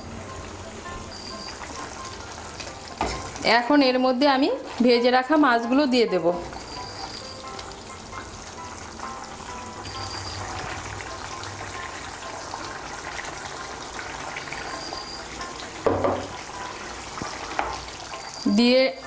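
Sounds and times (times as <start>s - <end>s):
background music: 0.0s - 19.0s
curry bubbling and sizzling: 0.0s - 19.0s
knock: 15.8s - 16.3s.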